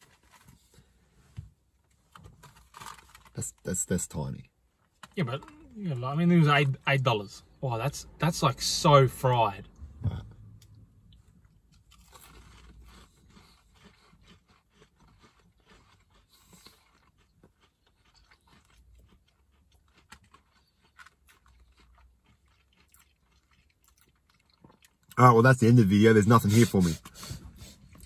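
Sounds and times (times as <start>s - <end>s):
chewing crunches: 10.6s - 25.2s.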